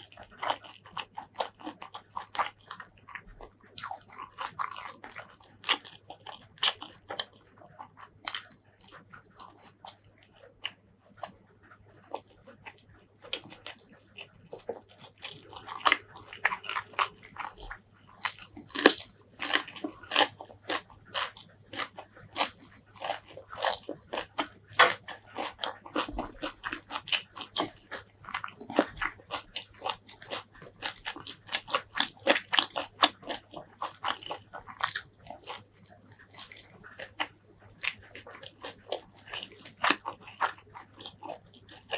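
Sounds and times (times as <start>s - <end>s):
person crunching raw vegetables: 0.0s - 11.4s, 12.0s - 41.9s
faint low hum: 0.0s - 41.9s
wet mouth sounds: 12.0s - 41.9s.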